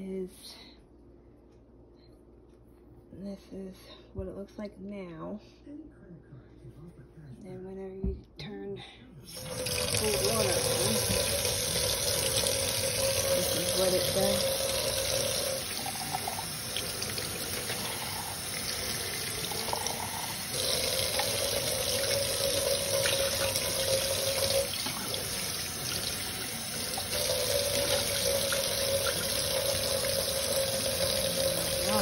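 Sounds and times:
water splashing in metal pail: 9.3s - 19.7s
faucet water running into sink: 9.3s - 32.0s.

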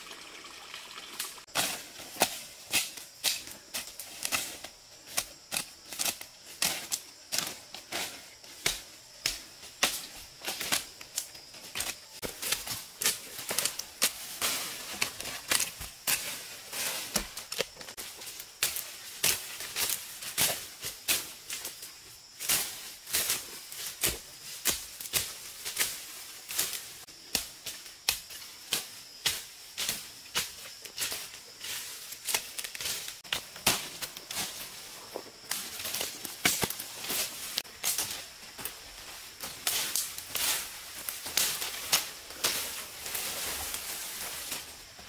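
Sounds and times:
twigs and leaves snapping: 8.6s - 16.3s, 32.1s - 45.0s.

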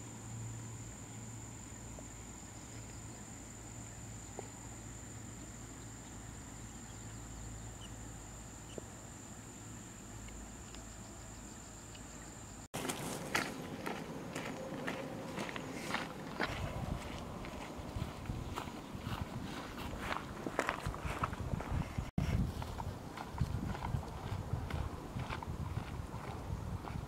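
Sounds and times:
insects high-pitched drone: 0.0s - 12.7s
footsteps on stony path: 12.8s - 27.0s.

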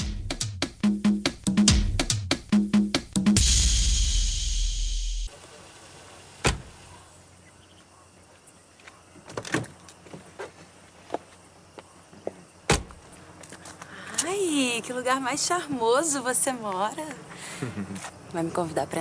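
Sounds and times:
loud rushing hiss with deep hum: 3.3s - 5.5s.

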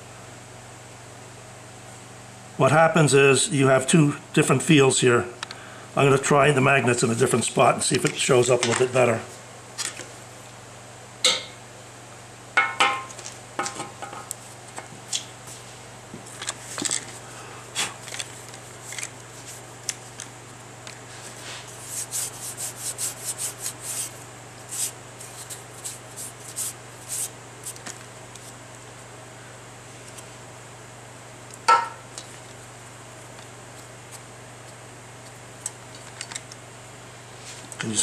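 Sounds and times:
sharp metallic knocks: 31.7s - 32.0s.

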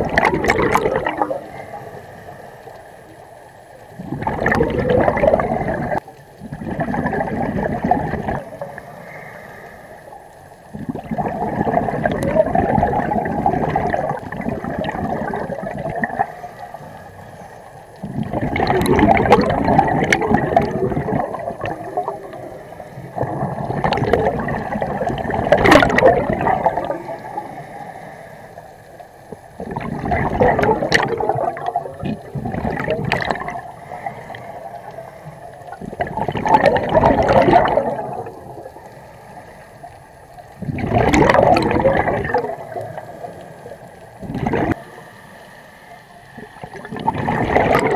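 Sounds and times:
exhaled air bubbling underwater: 0.0s - 47.9s
diver breathing through regulator: 8.7s - 10.4s, 26.8s - 29.0s, 33.6s - 35.7s.

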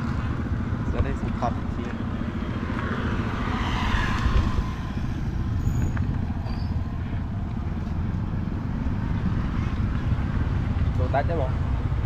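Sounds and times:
street noise rumble: 0.0s - 12.0s.

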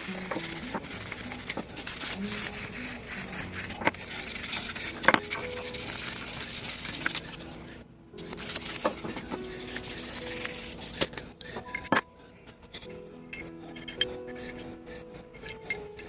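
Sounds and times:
sandpaper scratching on metal: 0.0s - 11.2s.

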